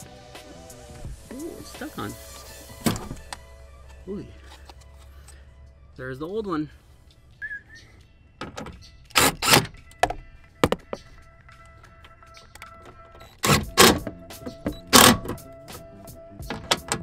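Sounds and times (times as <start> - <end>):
background music: 0.0 - 17.0
cordless impact driver bursts: 9.2 - 9.6.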